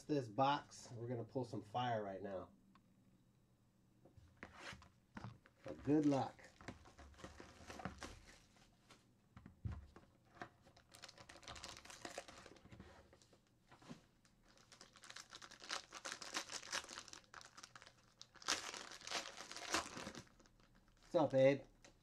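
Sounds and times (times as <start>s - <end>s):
foil pack crinkling: 10.8s - 13.3s, 14.2s - 21.4s.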